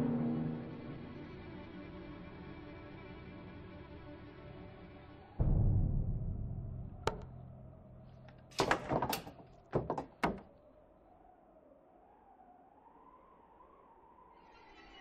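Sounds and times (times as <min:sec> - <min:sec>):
knocks on wooden boards: 0:08.6 - 0:10.5.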